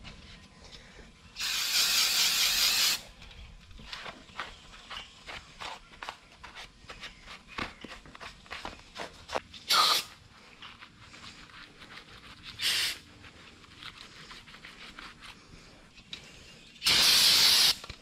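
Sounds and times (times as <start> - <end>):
aerosol can spraying: 1.4 - 3.0, 9.7 - 10.1, 12.6 - 13.0, 16.8 - 17.9.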